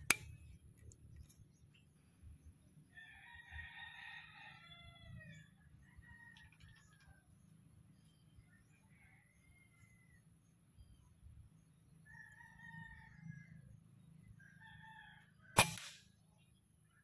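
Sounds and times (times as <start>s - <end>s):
sharp crack: 0.0s - 0.4s, 15.6s - 16.1s
rooster crowing: 2.9s - 7.1s, 12.0s - 13.8s, 14.4s - 15.6s.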